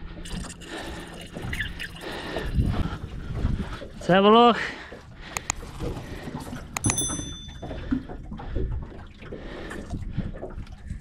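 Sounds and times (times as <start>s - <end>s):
sharp metallic clink: 6.8s - 7.7s.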